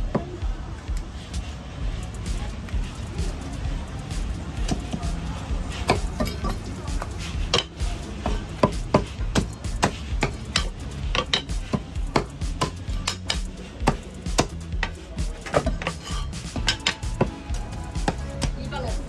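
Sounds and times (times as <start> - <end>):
cleaver chopping on wooden block: 7.5 - 17.3.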